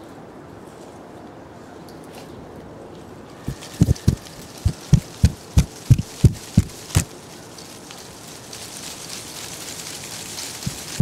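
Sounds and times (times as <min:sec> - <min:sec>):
soft hiss: 0:03.3 - 0:11.0
feet stamping on tiles: 0:03.5 - 0:07.1.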